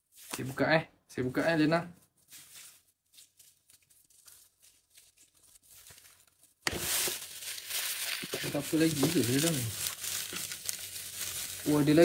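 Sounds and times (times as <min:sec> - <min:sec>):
gift wrapping rustling: 0:02.0 - 0:12.0.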